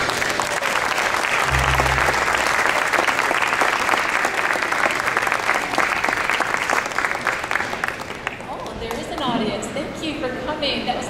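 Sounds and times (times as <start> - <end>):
audience applauding: 0.0 - 8.4
low hum: 1.4 - 3.2.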